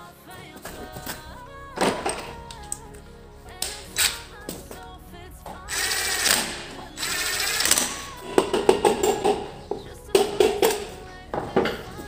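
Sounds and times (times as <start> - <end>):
background music: 0.0 - 12.0
mechanical rattling whirr: 5.7 - 9.5.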